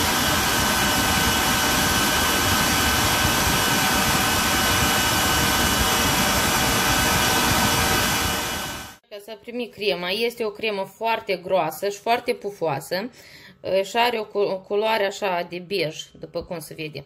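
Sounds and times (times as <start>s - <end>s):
stand mixer motor whining: 0.0s - 9.0s.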